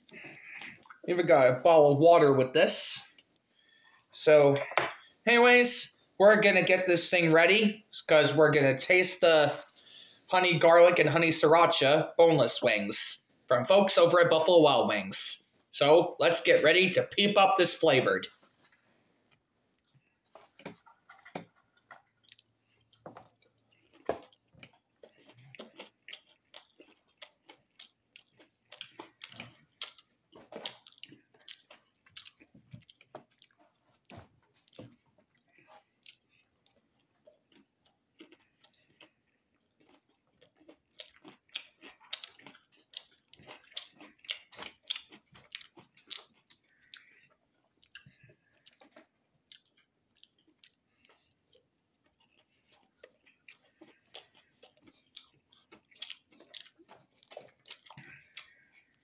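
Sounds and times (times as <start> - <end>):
chewing: 0.0 - 1.1, 18.3 - 59.0.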